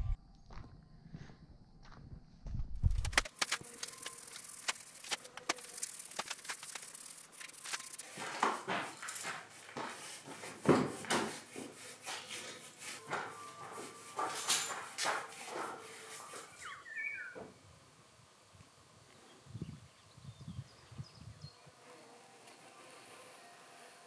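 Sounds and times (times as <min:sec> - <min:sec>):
paintbrush rubbing on wood: 0:03.1 - 0:16.6.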